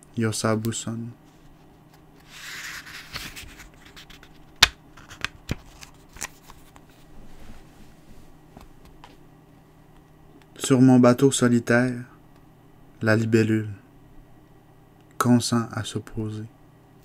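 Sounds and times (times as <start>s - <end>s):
book page rustling: 1.3s - 8.0s.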